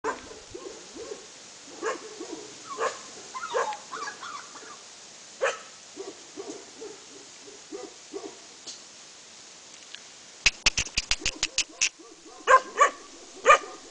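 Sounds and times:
dogs yelping: 0.0 - 4.8, 11.0 - 13.9.

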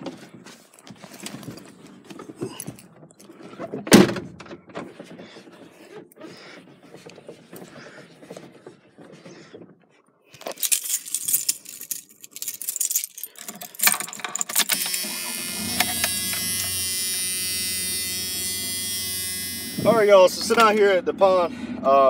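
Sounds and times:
keys jangling: 10.4 - 14.9
truck engine starting and idling: 14.7 - 22.0.

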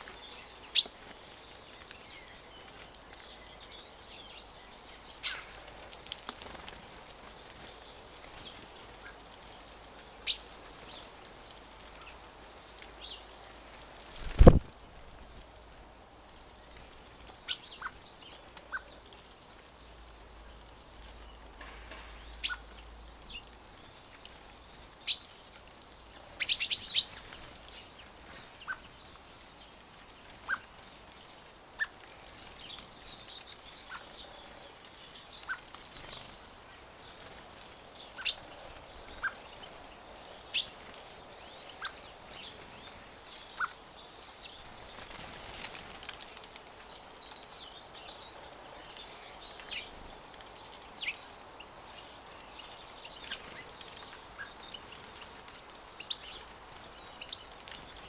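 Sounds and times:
small birds chirping: 0.0 - 58.0
wingbeats: 12.8 - 14.8.

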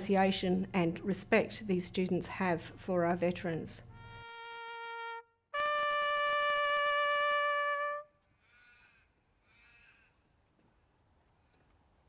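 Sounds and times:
bugle long note: 4.0 - 8.2
faint harsh bird calls: 8.2 - 10.4.

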